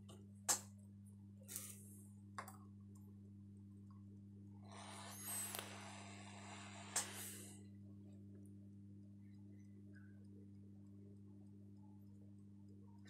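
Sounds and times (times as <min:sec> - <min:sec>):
hot air station humming: 0:04.5 - 0:07.8
crackling hiss: 0:04.8 - 0:07.6.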